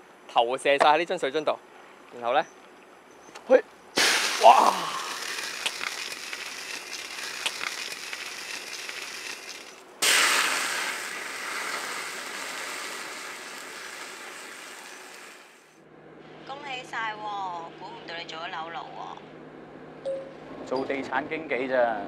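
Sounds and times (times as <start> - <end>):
fire crackling and hissing: 4.0 - 15.8
fire popping: 4.0 - 15.8
flames flaring up: 4.0 - 15.8.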